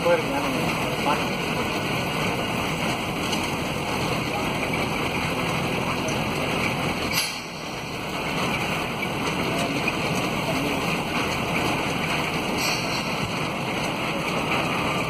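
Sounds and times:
road noise: 0.0s - 15.0s
vehicle engine: 0.0s - 15.0s
brief clatter: 12.6s - 13.4s.

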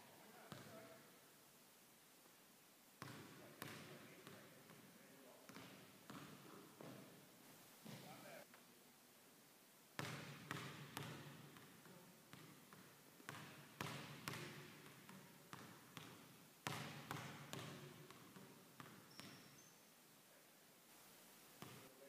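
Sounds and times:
basketball bouncing on wooden floor: 3.0s - 4.8s, 5.5s - 7.0s, 10.0s - 19.7s, 21.6s - 21.8s.

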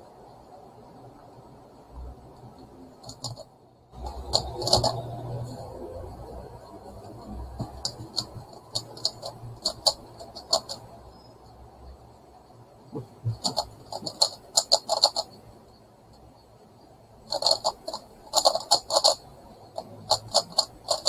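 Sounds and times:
plastic puzzle clicking: 7.6s - 10.8s, 13.3s - 15.4s, 17.3s - 21.0s.

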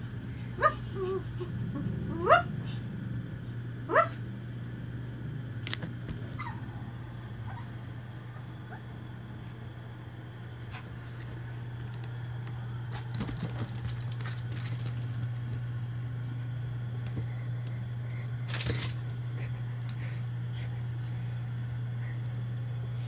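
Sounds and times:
low hum: 0.0s - 23.0s
dogs scuffling and scrabbling: 10.7s - 17.7s, 18.4s - 20.1s.

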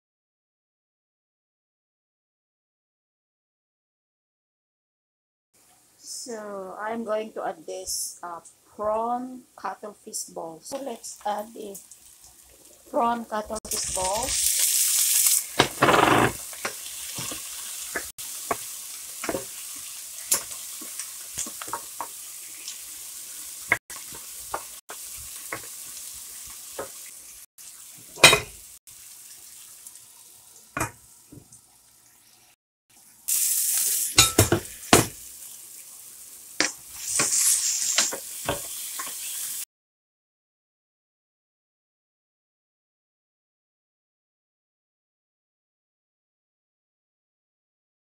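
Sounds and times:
food sizzling in oil: 10.7s - 39.7s.

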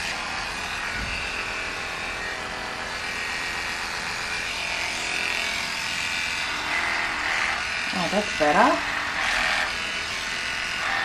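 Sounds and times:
electric clippers buzzing: 0.0s - 11.0s.

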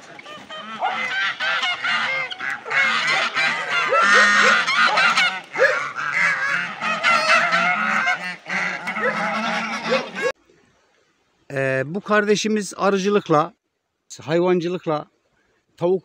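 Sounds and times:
geese honking: 0.0s - 10.4s.

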